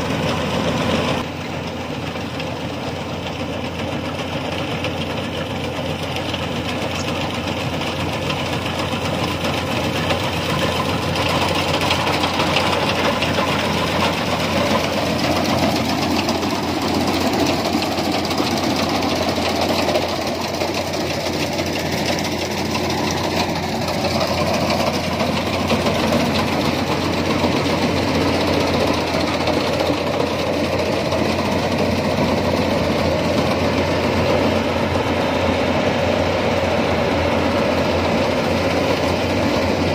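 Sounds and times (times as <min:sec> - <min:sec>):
combine harvester running: 0:00.0 - 0:39.9.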